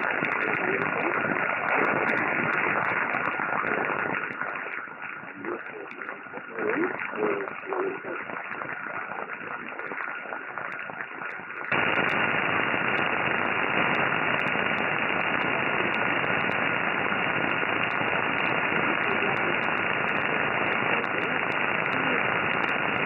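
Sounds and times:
shortwave radio static hiss: 0.0s - 23.0s
sharp clicks: 11.3s - 23.0s.

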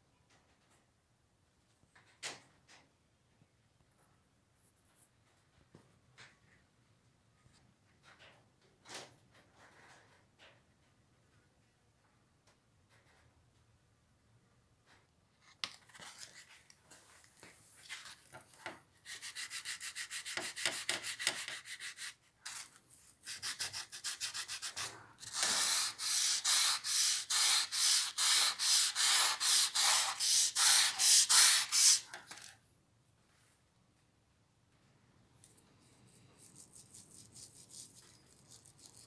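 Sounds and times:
sandpaper rubbing on steel: 19.0s - 22.2s, 23.2s - 32.2s.

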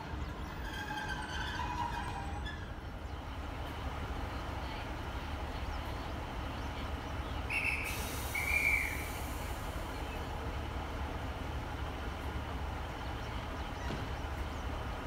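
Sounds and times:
diesel train idling hum: 0.0s - 15.0s
dispatcher's whistle blasts: 7.5s - 9.2s.

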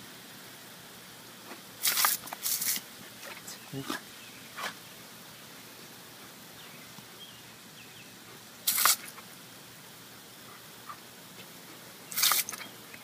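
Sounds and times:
hose nozzle spraying water: 1.8s - 3.5s, 8.6s - 9.4s, 10.9s - 13.0s.

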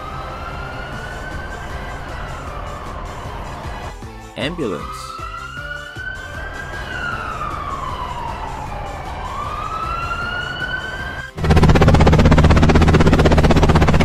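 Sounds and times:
ambulance siren wailing: 0.0s - 11.4s
helicopter rotor chopping: 11.4s - 14.0s.

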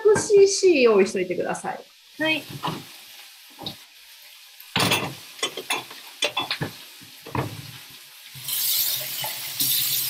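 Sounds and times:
vegetables sizzling in a frying pan: 0.0s - 10.0s
kitchenware clattering: 4.7s - 7.7s.

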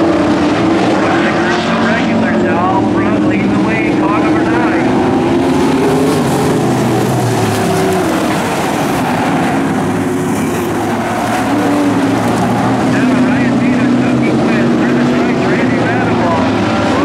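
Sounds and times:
race car engines droning: 0.0s - 17.0s.

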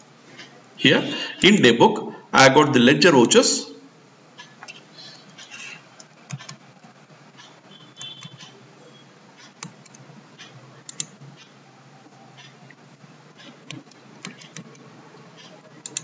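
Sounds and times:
low background hum: 0.0s - 16.0s
computer keyboard and mouse clicks: 4.4s - 6.6s, 7.4s - 8.5s, 9.4s - 11.5s, 13.4s - 16.0s.

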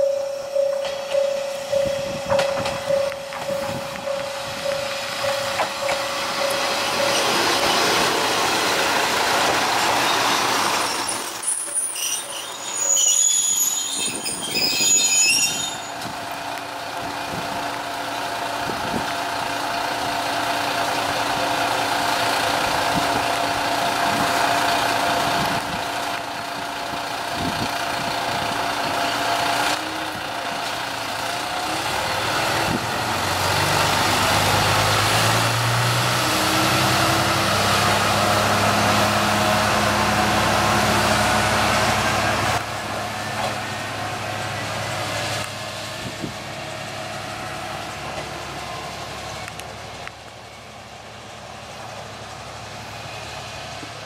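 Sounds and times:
diesel railcar running in: 0.0s - 54.0s
high brake squeals: 9.8s - 16.1s.

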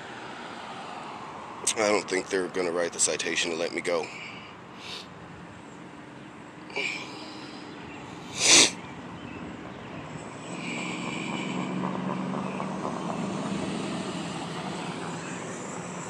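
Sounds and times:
vehicle engine drone: 0.0s - 16.0s
loud rush of noise: 10.5s - 16.0s.

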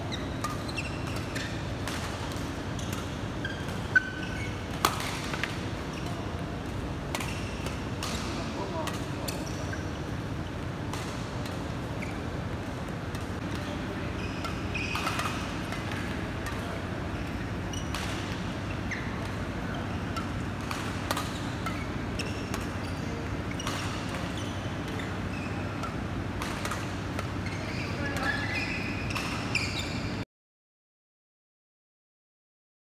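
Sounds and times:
shoe squeaks: 0.0s - 1.7s, 2.7s - 4.7s, 8.2s - 10.1s, 14.0s - 15.5s, 17.2s - 20.2s, 21.3s - 25.8s, 27.3s - 30.2s.

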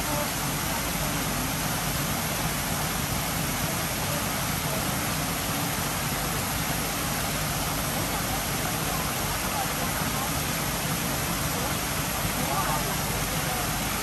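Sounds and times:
water cascading into pond: 0.0s - 14.0s.

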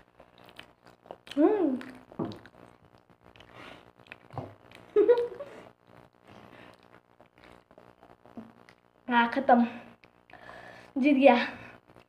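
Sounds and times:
children chewing: 0.0s - 8.9s, 9.9s - 10.9s
wet mouth noises: 0.0s - 8.9s.

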